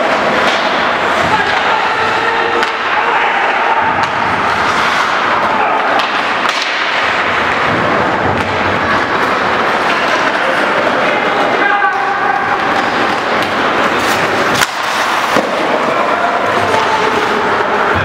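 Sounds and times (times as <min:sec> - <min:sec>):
skates scraping on ice: 0:00.0 - 0:18.0
sticks and puck knocking: 0:03.8 - 0:10.4.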